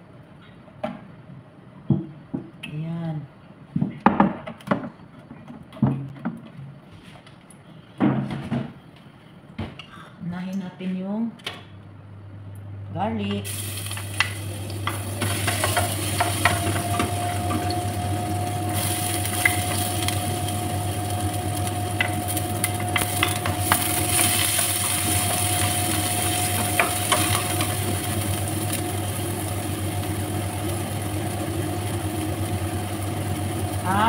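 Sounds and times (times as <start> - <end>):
steady low hum: 7.5 - 34.0
garlic and onion sizzling in a pan: 13.4 - 34.0.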